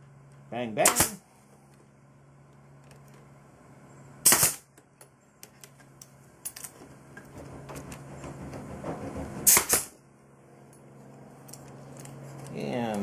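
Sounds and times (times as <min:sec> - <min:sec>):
nail gun shot: 0:00.8 - 0:01.2, 0:04.2 - 0:04.7, 0:09.4 - 0:10.0.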